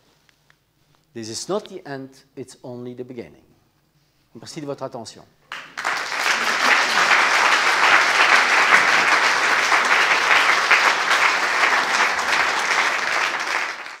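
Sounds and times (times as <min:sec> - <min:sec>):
audience applauding: 0:05.5 - 0:14.0.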